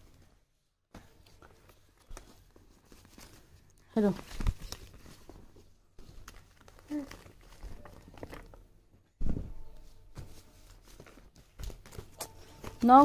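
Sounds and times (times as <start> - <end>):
paper rustling: 1.0 - 13.0
loud thump: 9.2 - 9.7.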